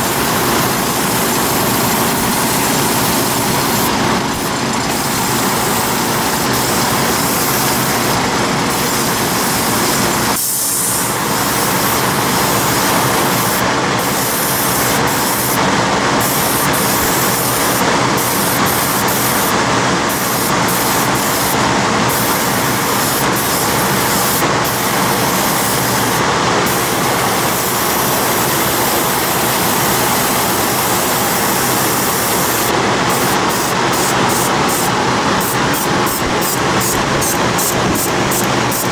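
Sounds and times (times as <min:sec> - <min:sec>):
mechanical drone: 0:00.0 - 0:10.4
airbrush spraying air: 0:00.0 - 0:38.9.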